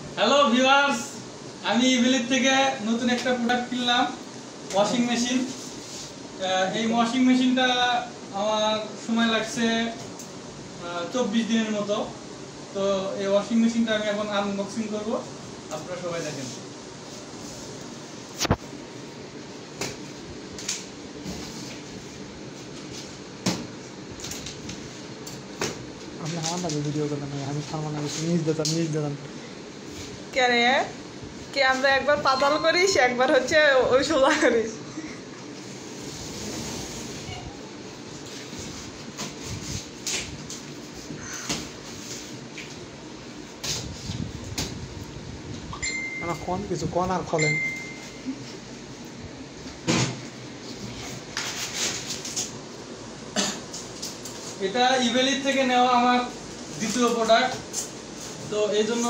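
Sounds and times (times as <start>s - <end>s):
low steady room noise: 0.0s - 59.0s.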